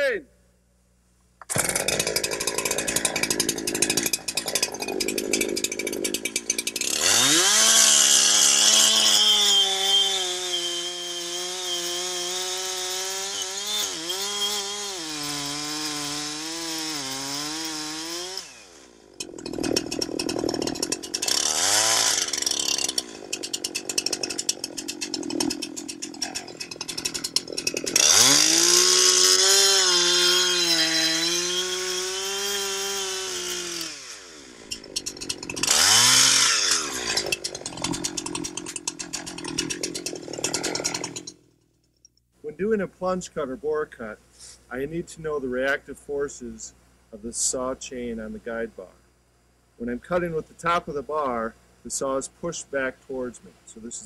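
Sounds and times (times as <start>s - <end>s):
chainsaw cutting tree trunk: 1.4s - 41.5s.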